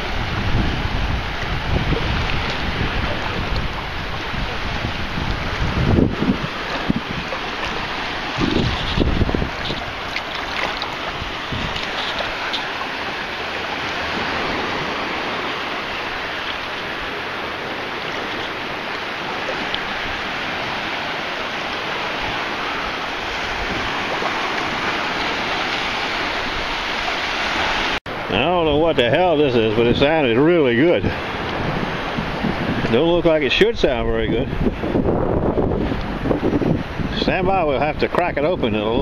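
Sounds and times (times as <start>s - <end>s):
shallow surf sloshing: 0.0s - 39.0s.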